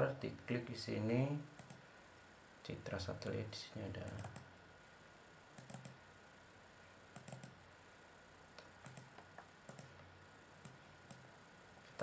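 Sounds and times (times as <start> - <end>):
faint computer mouse clicks: 1.6 - 1.8, 4.0 - 4.5, 5.6 - 6.0, 7.1 - 7.6, 8.5 - 10.0, 10.6 - 11.2.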